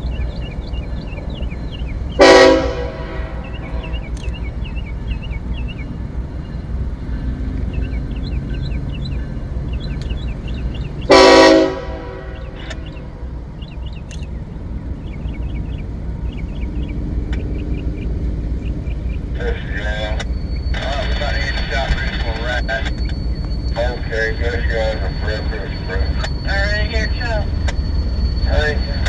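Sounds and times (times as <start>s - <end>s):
train rumbling: 0.0s - 29.0s
locomotive air horn blast: 2.2s - 4.0s, 11.1s - 13.2s.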